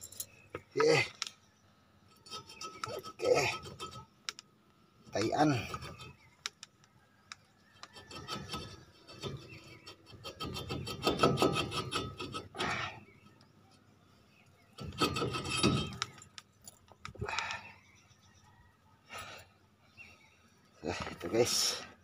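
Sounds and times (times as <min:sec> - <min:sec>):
metal scraping and grating: 0:02.1 - 0:04.2, 0:05.0 - 0:06.3, 0:07.7 - 0:13.4, 0:14.7 - 0:16.4
small metal knocks and clicks: 0:14.8 - 0:17.5.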